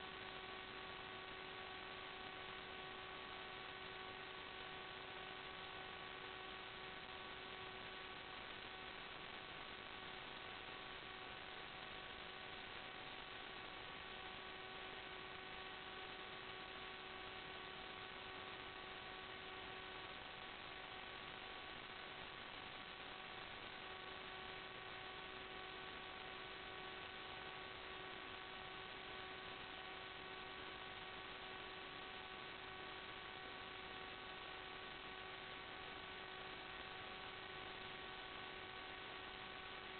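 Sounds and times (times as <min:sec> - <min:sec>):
constant buzzing hum: 0:00.0 - 0:39.9.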